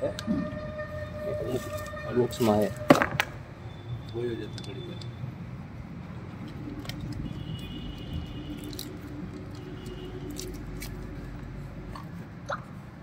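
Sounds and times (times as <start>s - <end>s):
small metallic clicks and scrapes: 4.0s - 5.2s, 6.4s - 11.1s.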